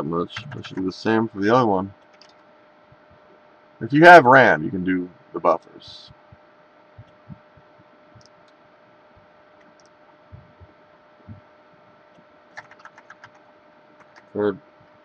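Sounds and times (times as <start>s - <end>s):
faint steady hum: 0.0s - 15.0s
keyboard typing and clicking: 2.0s - 2.4s, 8.2s - 8.6s, 9.6s - 10.0s, 12.1s - 14.4s
soft low thumps: 6.1s - 8.3s, 10.2s - 11.5s.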